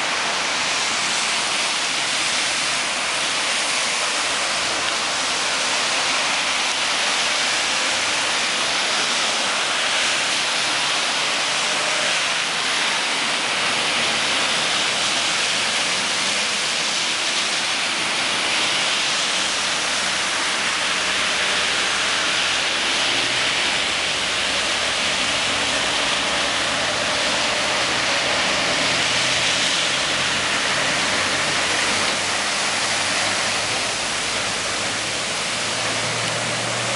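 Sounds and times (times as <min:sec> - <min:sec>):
traffic driving through flood water: 0:00.0 - 0:36.9.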